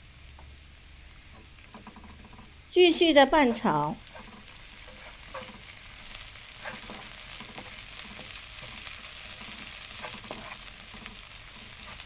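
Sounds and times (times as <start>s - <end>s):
paste sizzling in hot oil: 0.0s - 12.0s
spatula scraping a wok: 3.5s - 12.0s.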